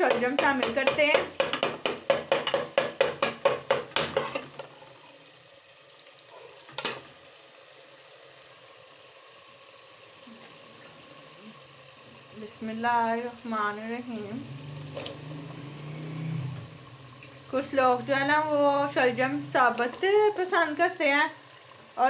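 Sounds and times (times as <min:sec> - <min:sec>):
ladle knocking against pot: 0:00.0 - 0:04.5
food sizzling quietly: 0:00.0 - 0:22.0
metal ladle scraping pot: 0:03.2 - 0:05.1.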